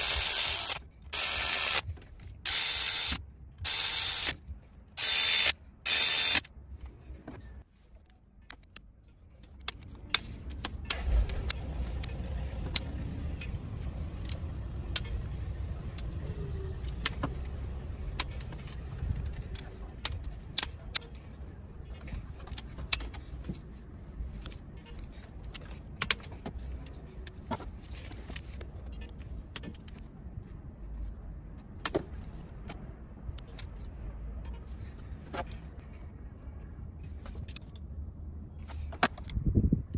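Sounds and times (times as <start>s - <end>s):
cordless electric ratchet running: 0.0s - 1.8s, 2.4s - 4.4s, 5.0s - 6.5s.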